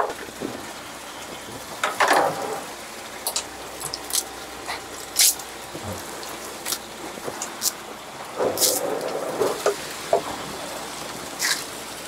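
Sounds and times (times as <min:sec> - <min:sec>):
steady background hiss: 0:00.0 - 0:12.0
wet squelches and splashes: 0:03.2 - 0:10.0.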